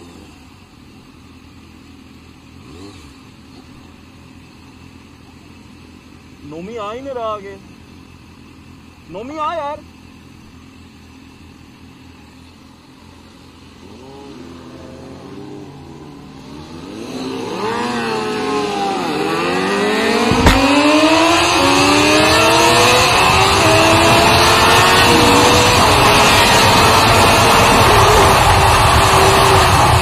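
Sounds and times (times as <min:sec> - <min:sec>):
motorcycle accelerating through gears: 0:00.0 - 0:01.0, 0:02.4 - 0:03.9, 0:13.6 - 0:30.0
motorcycle engines revving: 0:00.0 - 0:07.0, 0:07.9 - 0:30.0
rush of wind: 0:16.5 - 0:30.0
sharp knock: 0:20.2 - 0:21.2.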